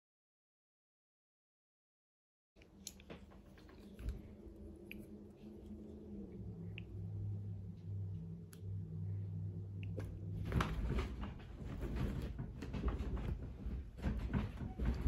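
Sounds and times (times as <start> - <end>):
low steady hum: 2.6 - 15.0
dog paws scrabbling on blanket: 10.0 - 15.0.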